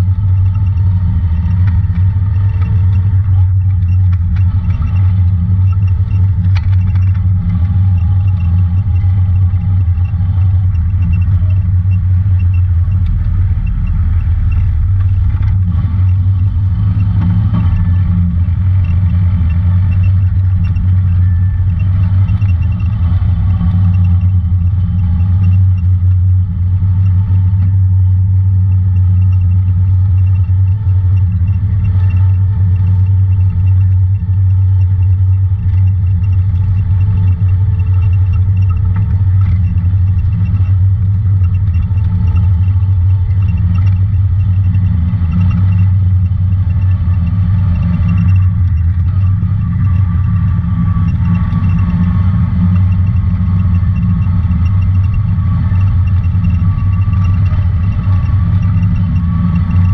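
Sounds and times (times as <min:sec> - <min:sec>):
off-road vehicle engine drone: 0:00.0 - 0:59.9
rattling over rough ground: 0:00.0 - 0:59.9.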